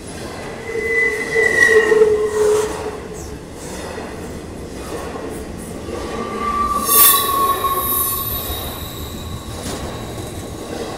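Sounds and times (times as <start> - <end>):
train cars squealing metal on metal: 0.5 - 3.2, 5.8 - 10.9
loud shrill squeal: 0.6 - 2.7, 5.9 - 10.9
low rumble: 5.6 - 10.9
steady high whine: 5.7 - 10.9.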